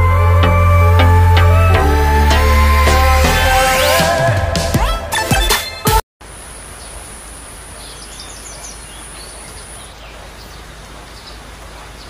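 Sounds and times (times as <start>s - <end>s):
background hiss: 6.2s - 12.0s
bird chirps: 7.7s - 12.0s.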